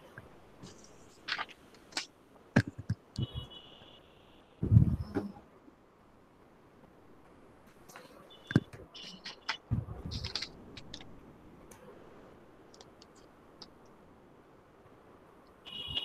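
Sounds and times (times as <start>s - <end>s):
keyboard and mouse clicking: 7.9s - 11.1s, 12.7s - 13.9s.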